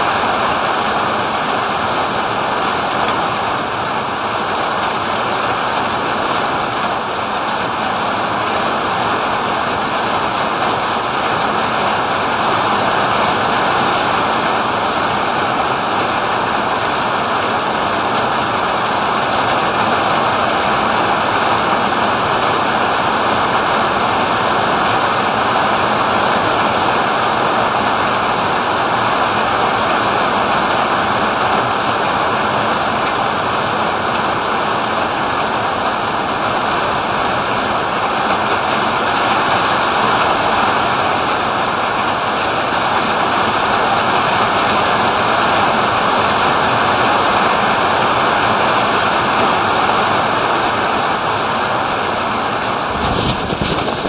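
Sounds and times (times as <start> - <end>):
heavy rain hiss: 0.0 - 54.0.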